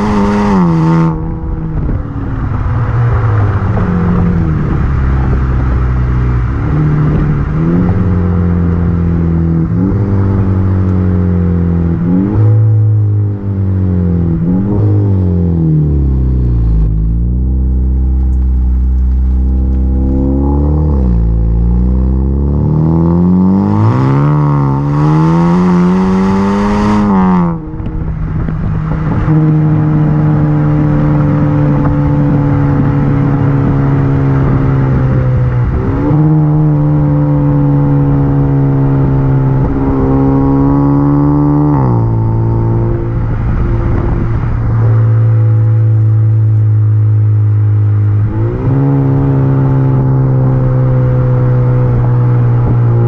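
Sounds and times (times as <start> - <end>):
car exhaust drone while driving: 0.0 - 53.0.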